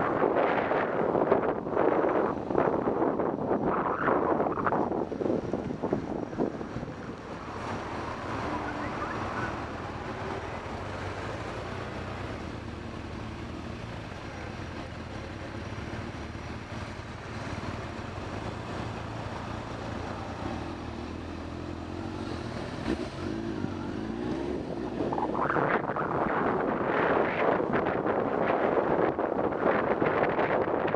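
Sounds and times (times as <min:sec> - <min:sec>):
wind noise on microphone: 0:00.0 - 0:12.7, 0:22.3 - 0:30.9
motorcycle engine running: 0:05.4 - 0:26.3.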